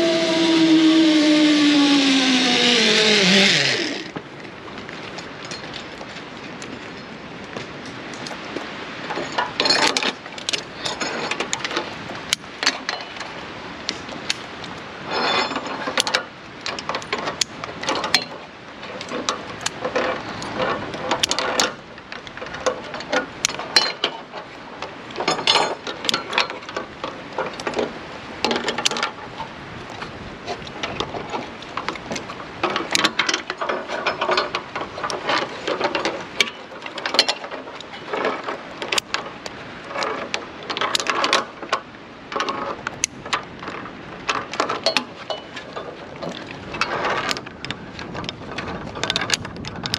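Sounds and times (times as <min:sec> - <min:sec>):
metal climbing gear clinking: 0:05.2 - 0:06.2, 0:09.1 - 0:13.4, 0:15.1 - 0:29.2, 0:30.6 - 0:39.3, 0:39.9 - 0:49.9.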